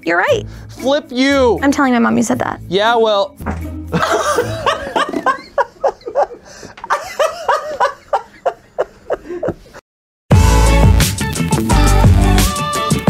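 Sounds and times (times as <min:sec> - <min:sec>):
upbeat electronic music: 0:03.4 - 0:04.7, 0:10.3 - 0:13.0
group of people laughing: 0:03.9 - 0:09.8.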